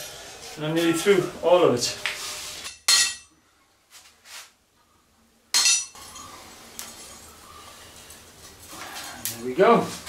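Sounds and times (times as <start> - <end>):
steel striking anvil: 2.6 - 3.3, 5.5 - 6.0.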